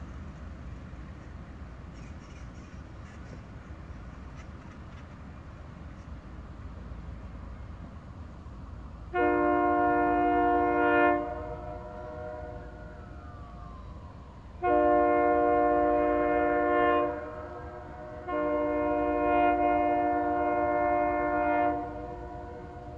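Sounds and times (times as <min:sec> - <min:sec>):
locomotive air horn blasts: 0:09.1 - 0:13.0, 0:14.6 - 0:22.9.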